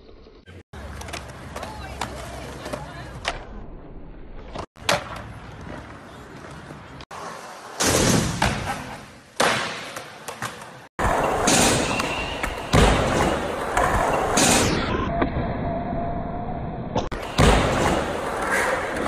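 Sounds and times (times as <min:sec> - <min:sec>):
skateboard wheels rolling: 0:00.0 - 0:03.6, 0:04.4 - 0:07.8, 0:17.2 - 0:19.0
skateboard decks popping and landing: 0:04.5 - 0:07.0.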